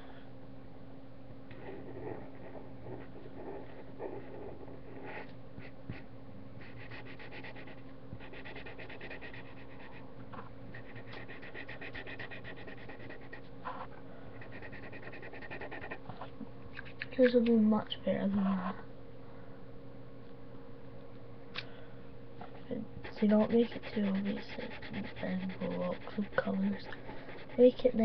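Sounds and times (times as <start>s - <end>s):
steady low hum: 0.0s - 28.0s
marker scribbling on paper: 6.6s - 10.0s, 10.8s - 13.4s, 14.4s - 16.0s, 23.0s - 28.0s.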